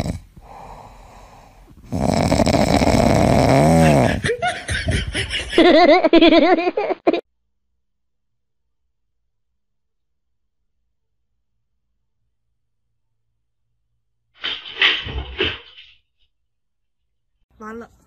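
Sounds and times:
puppy snoring: 0:00.0 - 0:04.2.

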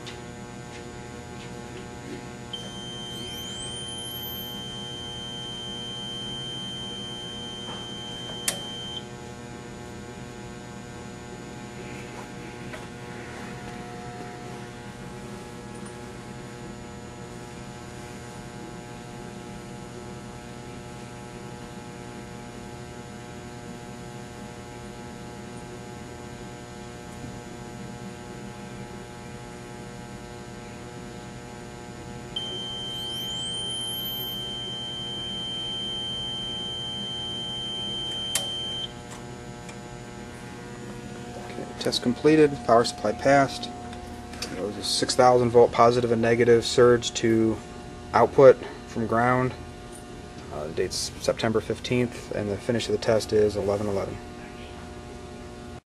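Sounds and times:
electrical hum: 0:00.0 - 0:55.8
high steady tone: 0:02.5 - 0:09.0, 0:32.4 - 0:45.2.

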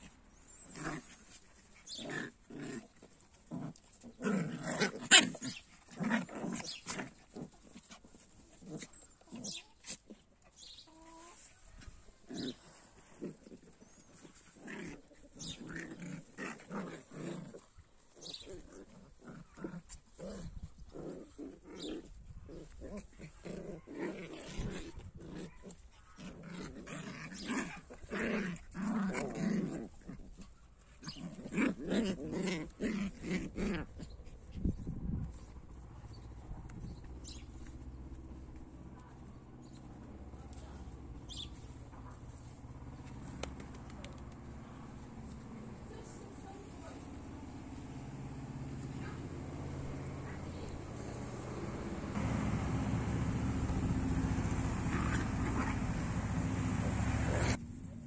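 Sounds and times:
puppies yelping: 0:04.1 - 0:07.0, 0:42.4 - 0:57.6.

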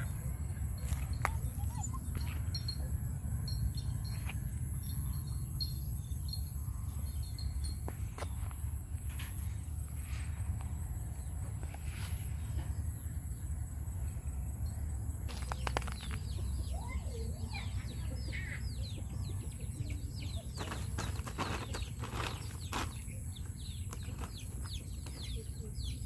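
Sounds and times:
steady low rumble: 0:00.0 - 0:15.3
chick peeping: 0:16.3 - 0:22.9
sharp rustling: 0:20.5 - 0:23.1.

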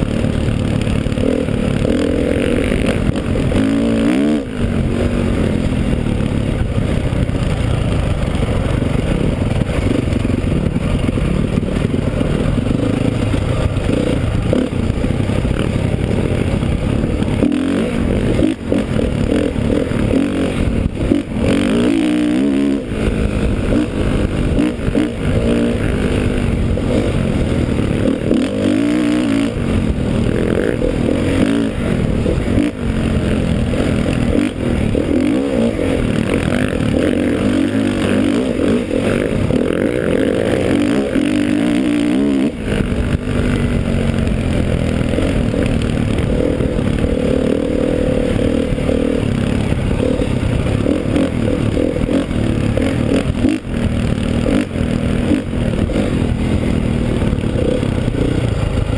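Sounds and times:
dirt bike engine revving: 0:00.0 - 0:58.9.

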